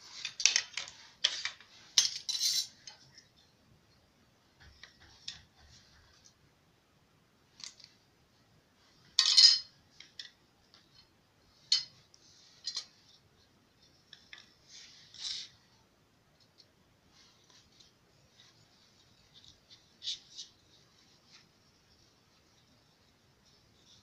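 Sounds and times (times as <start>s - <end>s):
cutlery clinking on tiled floor: 2.0s - 2.8s, 9.2s - 9.7s.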